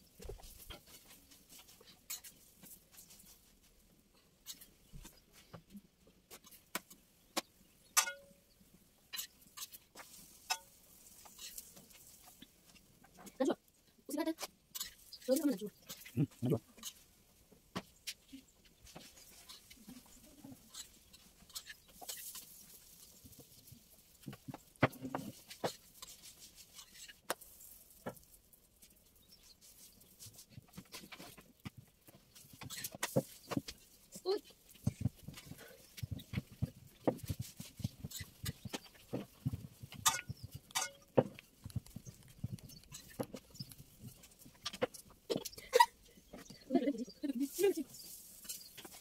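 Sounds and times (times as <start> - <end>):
metal spoon clinking on pan: 8.0 - 8.4, 40.1 - 41.1.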